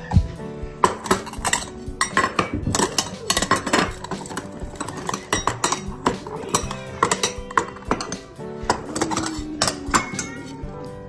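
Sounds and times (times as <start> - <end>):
cat food bowls clattering: 0.8 - 10.6.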